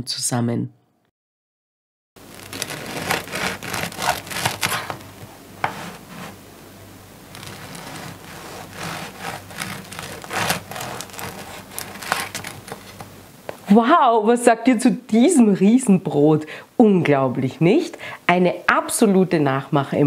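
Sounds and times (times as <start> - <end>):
bread knife sawing through crust: 2.2 - 5.0, 5.6 - 6.4, 7.3 - 13.0.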